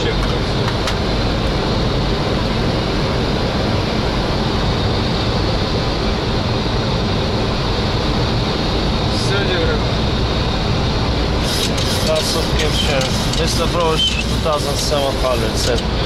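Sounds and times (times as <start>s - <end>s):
airflow rushing around aircraft: 0.0s - 16.0s.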